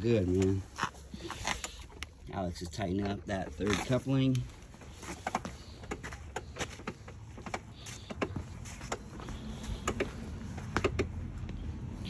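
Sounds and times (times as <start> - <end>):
light clicks and knocks: 4.3 - 11.6.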